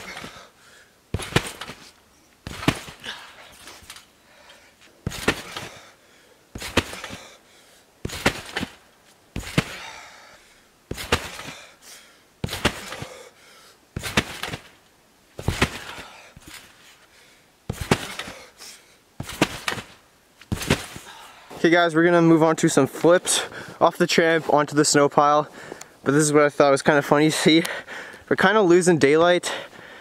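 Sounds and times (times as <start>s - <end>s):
feet landing on trampoline: 0.0s - 0.5s, 1.1s - 4.1s, 4.8s - 5.9s, 6.5s - 7.4s, 8.0s - 10.1s, 10.9s - 11.7s, 12.4s - 13.2s, 14.0s - 14.8s, 15.4s - 16.9s, 17.7s - 18.5s, 19.2s - 21.2s.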